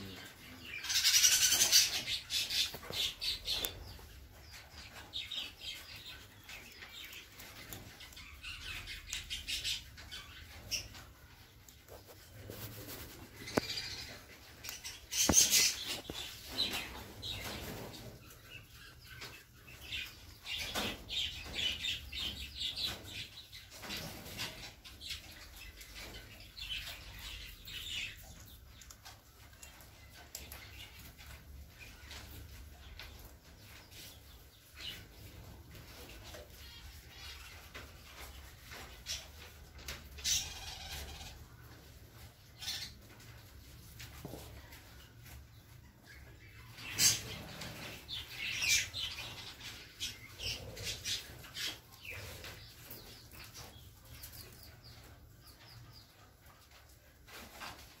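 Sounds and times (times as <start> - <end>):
parrots chirping and squawking: 0.6 - 4.0, 13.4 - 17.9, 40.2 - 41.4.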